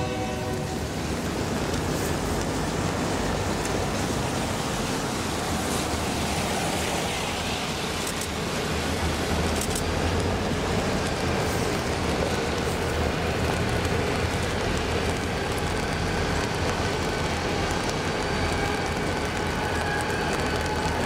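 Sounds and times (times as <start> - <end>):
diesel locomotive rumble: 0.0 - 21.0
rain-like hiss: 0.0 - 21.0.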